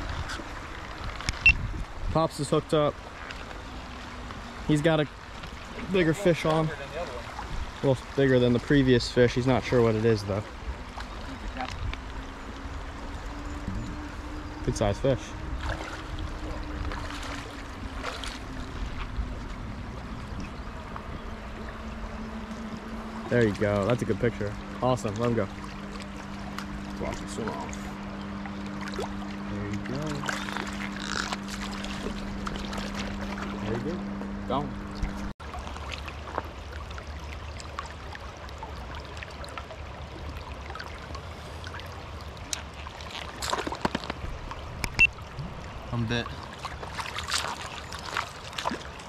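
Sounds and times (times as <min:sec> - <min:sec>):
faint steady drone: 0:00.0 - 0:43.3
low wind: 0:00.0 - 0:49.0
river water rumble: 0:00.0 - 0:49.0
brief splashes: 0:46.2 - 0:49.0.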